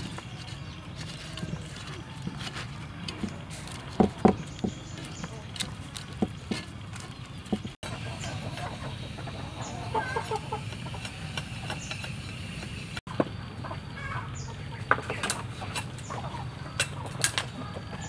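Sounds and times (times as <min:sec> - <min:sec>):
chickens clucking: 0:00.0 - 0:18.0.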